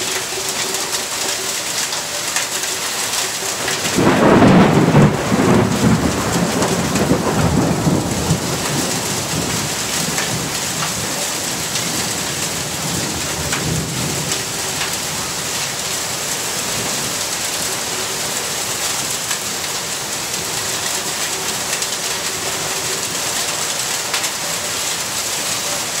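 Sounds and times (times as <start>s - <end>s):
heavy rain pouring: 0.0s - 26.0s
thunder rumbling: 3.4s - 18.0s.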